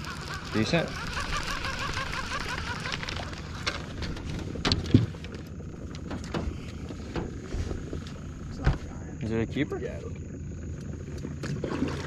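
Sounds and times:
fishing reel whirring: 0.0 - 6.3.

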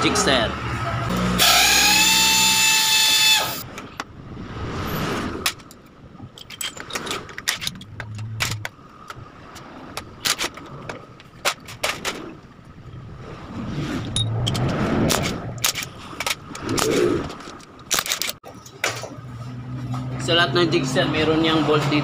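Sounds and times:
power tool motor whining: 1.1 - 3.6
metal tools clinking: 6.4 - 8.7.

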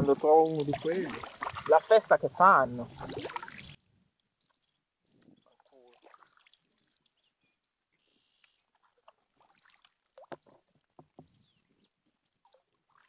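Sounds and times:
paddle splashing water: 0.0 - 3.8, 5.4 - 7.2, 8.5 - 13.0
small water drips: 0.4 - 2.0, 3.0 - 3.8, 5.6 - 7.3, 8.4 - 10.6.

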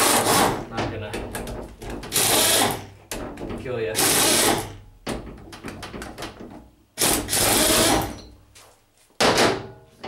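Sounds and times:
power tool spinning bolts: 2.1 - 2.8, 7.0 - 8.2.

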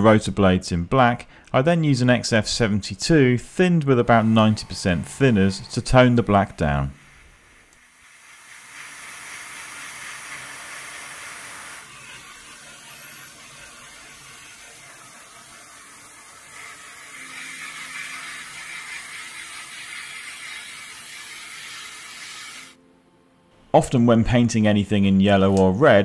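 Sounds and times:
airbrush hissing: 3.9 - 22.8.

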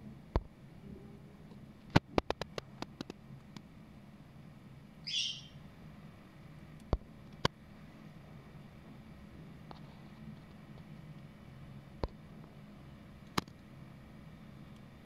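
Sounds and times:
short high chirp: 5.1 - 5.6.

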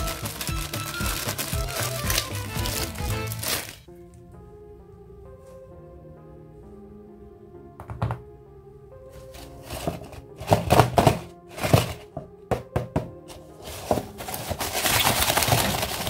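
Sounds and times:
cardboard scraping and rustling: 0.0 - 3.9, 9.2 - 12.2, 13.3 - 16.0
soft background music: 0.0 - 16.0.

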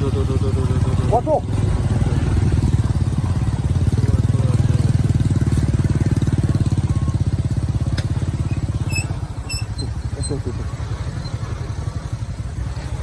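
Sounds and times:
vehicle engines running: 0.0 - 13.0.

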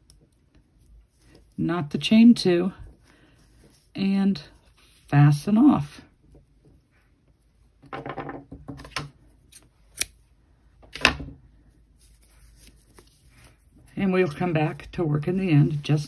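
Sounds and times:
yarn and fingers rustling: 0.0 - 7.9, 11.6 - 16.0.

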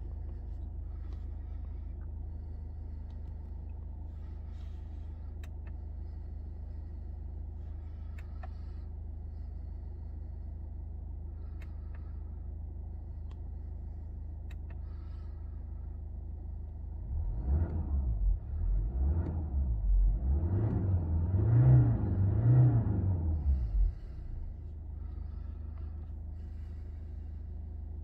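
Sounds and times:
diesel engine idling: 0.0 - 17.0, 23.2 - 28.0
engine revving: 17.0 - 26.9.

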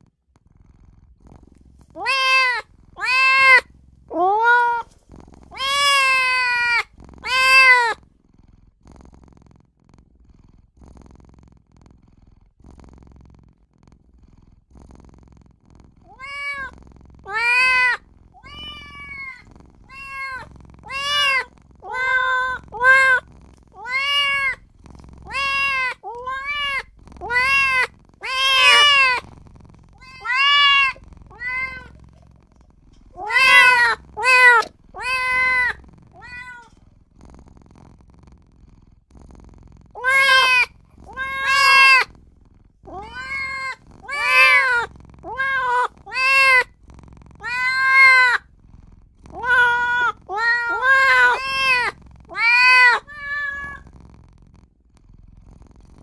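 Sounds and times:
kitten meowing: 2.0 - 4.9, 5.5 - 8.0, 16.1 - 16.7, 17.3 - 24.6, 25.2 - 29.2, 30.0 - 32.0, 33.1 - 36.7, 40.0 - 42.1, 42.9 - 46.7, 47.4 - 48.4, 49.3 - 53.8.

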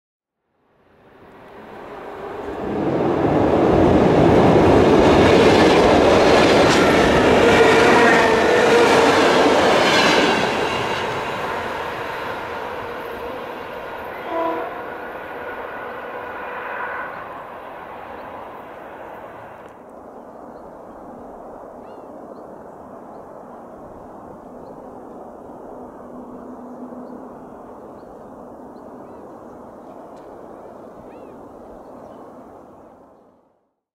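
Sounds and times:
train wheels on rails: 1.4 - 19.9.

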